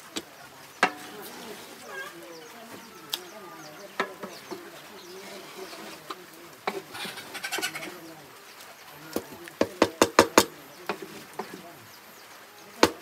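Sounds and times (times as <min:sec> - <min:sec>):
wooden paddle scraping mash: 0:00.0 - 0:01.9, 0:03.8 - 0:08.0, 0:09.0 - 0:11.8
faint bird calls: 0:00.0 - 0:13.0
paddle knocking on metal pot: 0:04.0 - 0:04.7, 0:09.2 - 0:11.6, 0:12.8 - 0:13.0.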